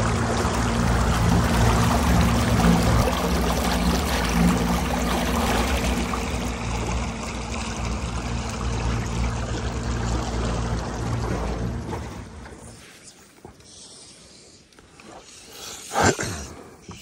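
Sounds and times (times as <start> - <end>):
low steady hum: 0.0 - 13.1
running water: 0.0 - 13.7.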